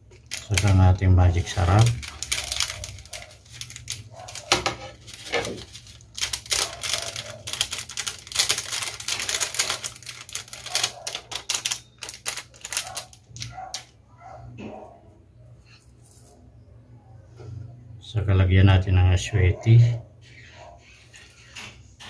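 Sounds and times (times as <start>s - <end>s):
foil sachet crinkling: 0.0s - 13.8s.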